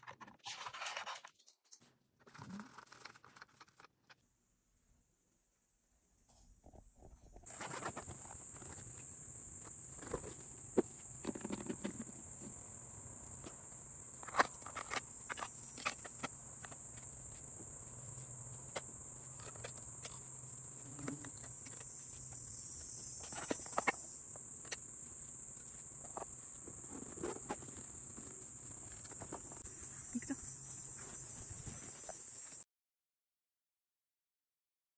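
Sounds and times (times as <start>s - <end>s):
insect chirring: 7.5s - 32.6s.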